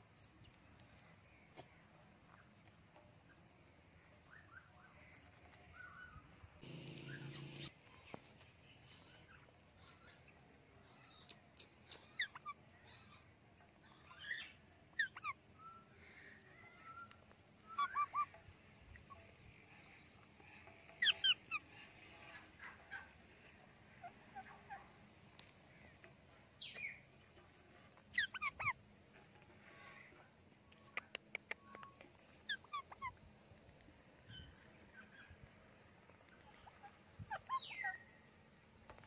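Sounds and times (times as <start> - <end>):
parakeets squawking: 28.2 - 28.7.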